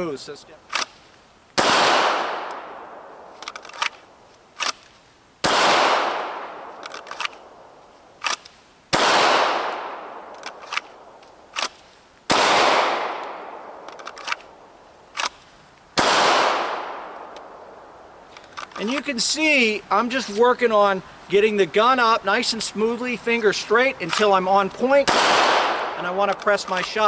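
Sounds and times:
pistol shots: 1.6 - 4.0, 5.4 - 7.4, 8.2 - 14.4, 16.0 - 17.6, 25.0 - 26.8
small sharp clicks: 3.4 - 5.0, 6.8 - 7.5, 8.2 - 8.6, 13.2 - 14.5, 15.1 - 15.9.

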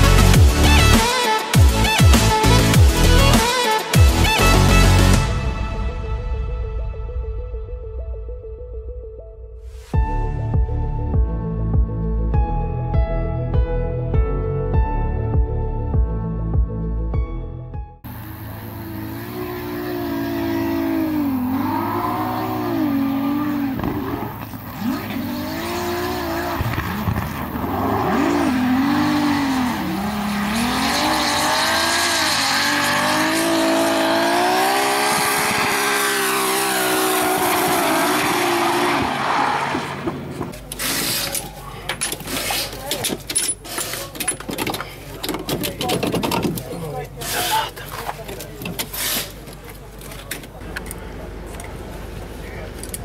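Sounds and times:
car engine revving: 18.1 - 41.2
tyres squealing: 35.8 - 49.6.

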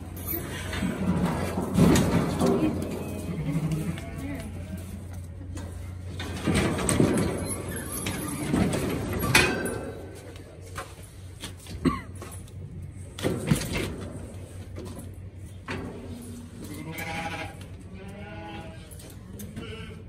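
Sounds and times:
metal chute rattling and clanking: 0.0 - 10.3.

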